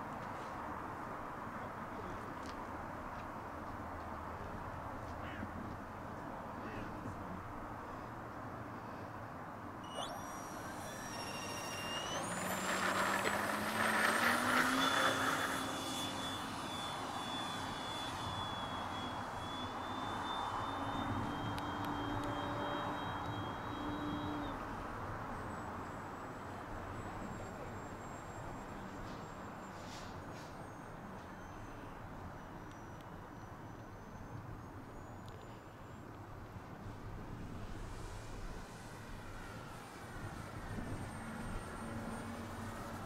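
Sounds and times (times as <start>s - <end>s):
model plane motor whine: 9.8s - 29.4s, 37.6s - 43.0s.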